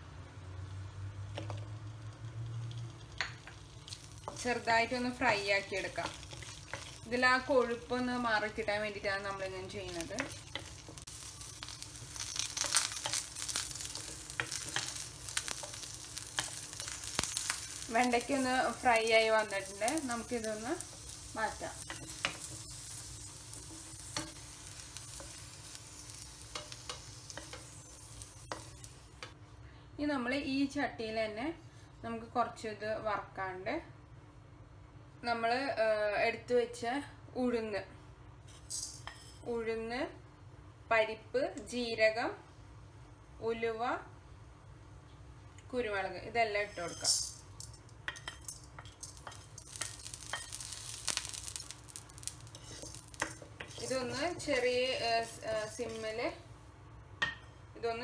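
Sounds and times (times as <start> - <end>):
okra sizzling in oil: 0.0 - 29.5, 45.7 - 58.0
wooden spoon scraping a pan: 8.4 - 29.2, 52.2 - 56.3.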